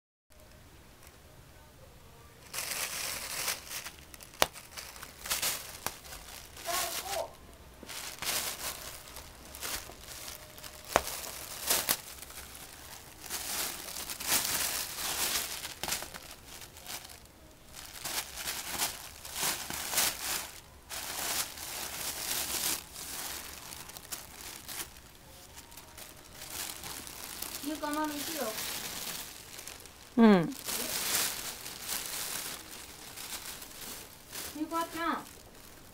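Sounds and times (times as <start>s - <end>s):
plastic bag crinkling: 2.4s - 35.9s.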